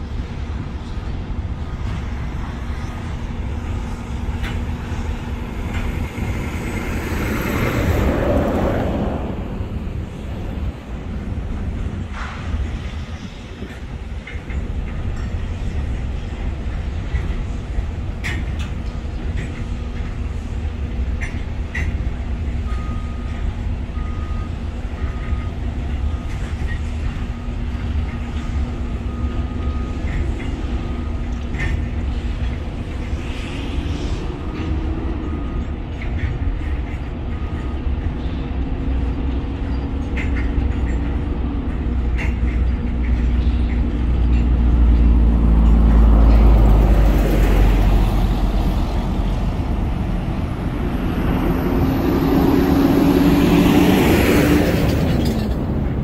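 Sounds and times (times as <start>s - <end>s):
heavy low rumble: 0.0s - 16.0s, 40.7s - 56.0s
diesel engine running: 19.1s - 56.0s.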